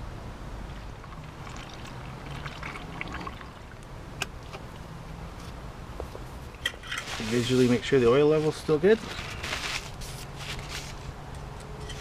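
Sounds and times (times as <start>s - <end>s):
coolant pouring from plastic jug: 0.7s - 3.8s.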